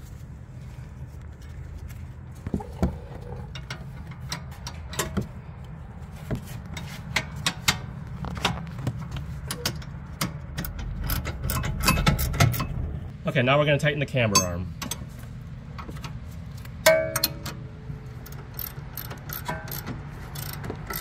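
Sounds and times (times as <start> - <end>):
steady low hum: 0.0 - 21.0
ratcheting wrench clicking: 9.5 - 12.8, 18.2 - 21.0.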